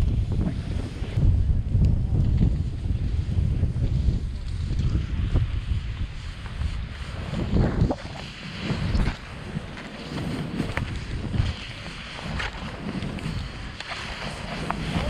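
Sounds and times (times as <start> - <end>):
snowboard carving through snow: 0.0 - 15.0
wind buffeting microphone: 0.0 - 15.0.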